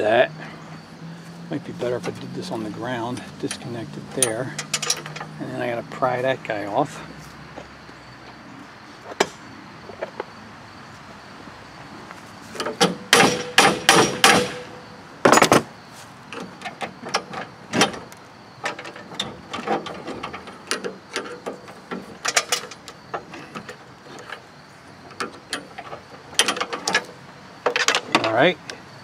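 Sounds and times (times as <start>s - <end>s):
metal rattling burst: 13.0s - 14.8s.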